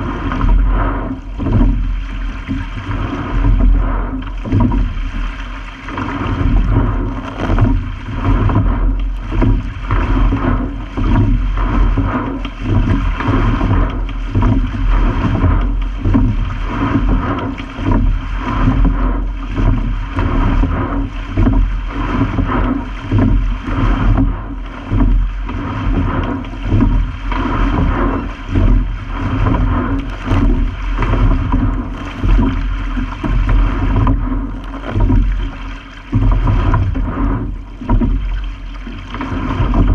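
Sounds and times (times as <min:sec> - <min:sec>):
water rushing along boat hull: 0:00.0 - 0:39.9.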